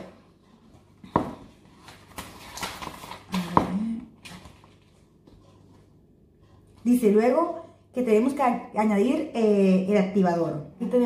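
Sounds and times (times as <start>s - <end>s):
paper rustling: 1.6s - 3.6s.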